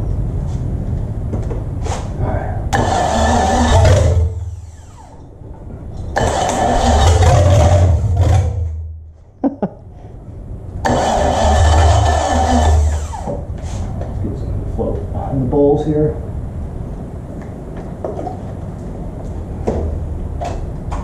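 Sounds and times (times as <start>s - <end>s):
car engine starting and winding down: 2.7s - 9.1s, 10.8s - 13.9s.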